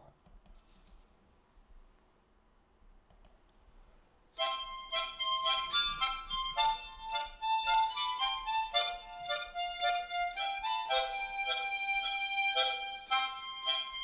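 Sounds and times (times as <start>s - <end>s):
faint clicks: 0.2s - 1.0s, 3.0s - 3.6s
harmonica melody: 4.4s - 14.0s.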